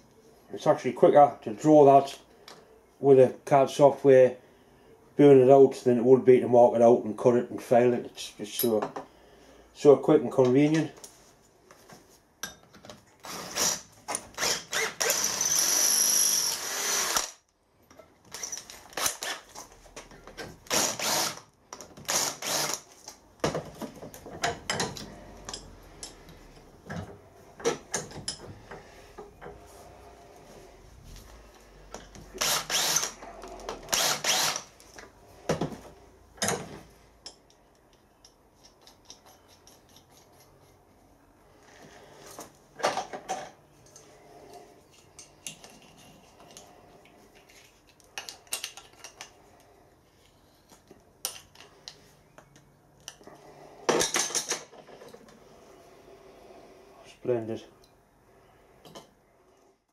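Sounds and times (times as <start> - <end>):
power drill whining: 13.2 - 17.4, 20.7 - 21.4, 22.0 - 22.9, 32.2 - 34.7
metal tools scraping and clinking: 24.0 - 29.6, 36.4 - 40.8, 42.2 - 49.4.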